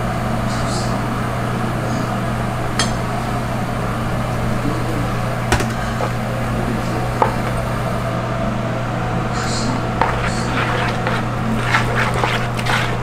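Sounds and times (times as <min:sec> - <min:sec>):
kitchen machine hum: 0:00.0 - 0:13.0.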